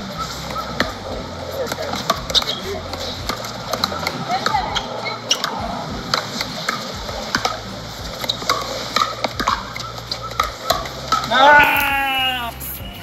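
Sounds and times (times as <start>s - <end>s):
ball bouncing on hard court: 0.5s - 13.0s
paddles tapping plastic ball: 1.7s - 12.0s.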